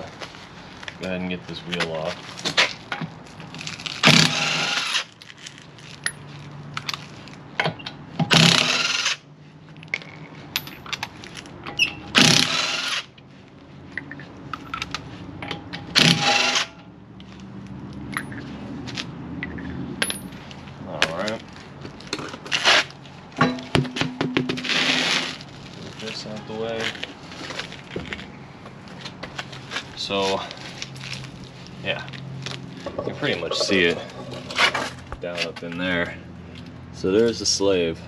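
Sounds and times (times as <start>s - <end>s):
impact wrench hammering: 12.1s - 13.0s, 23.4s - 25.0s.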